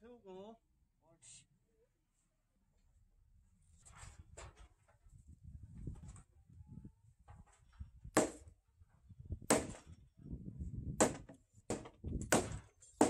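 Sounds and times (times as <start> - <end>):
dull wooden knocks on timber: 11.0 - 12.5.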